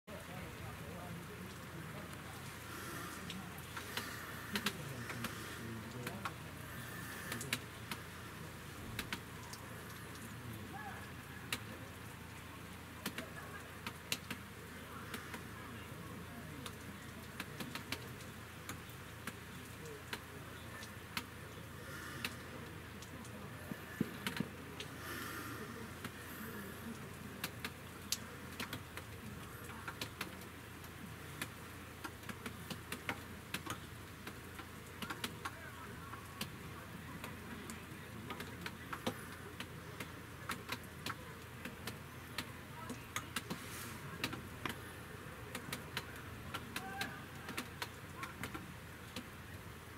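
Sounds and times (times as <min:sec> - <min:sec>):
faint distant voices: 0:00.1 - 0:49.9
steady hiss: 0:00.3 - 0:34.8.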